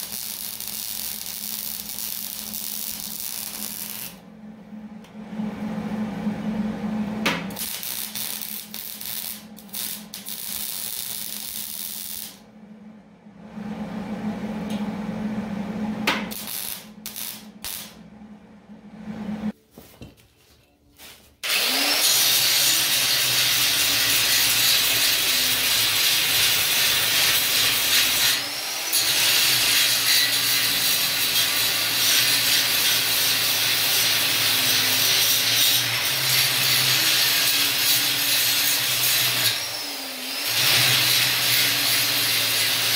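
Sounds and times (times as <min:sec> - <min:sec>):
angle grinder cutting steel: 0:00.0 - 0:04.2, 0:07.6 - 0:12.4, 0:21.4 - 0:42.9
arc welding crackling: 0:00.0 - 0:04.2, 0:07.5 - 0:12.4, 0:16.3 - 0:18.0, 0:21.6 - 0:39.6, 0:40.4 - 0:42.9
welder humming: 0:00.0 - 0:19.6, 0:21.4 - 0:42.9.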